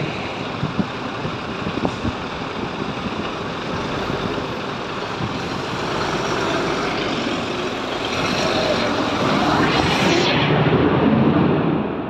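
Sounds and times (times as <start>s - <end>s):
diesel truck engine running: 0.0s - 10.3s.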